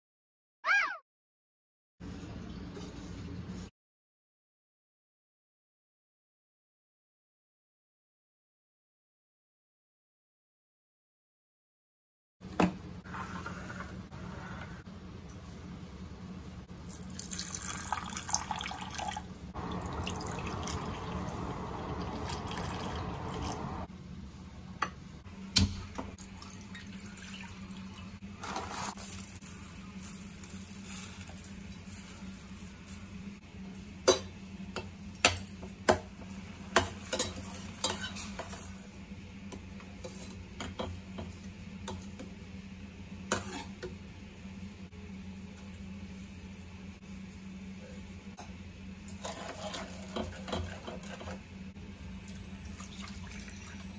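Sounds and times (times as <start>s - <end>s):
water pouring into glass bowl: 17.0s - 23.8s, 52.8s - 53.9s
running water: 17.1s - 23.9s.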